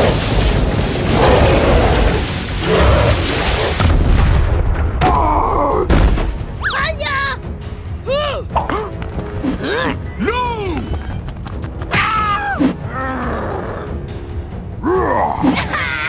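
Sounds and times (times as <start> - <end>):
cartoon explosion blast and rumble: 0.0 - 6.4.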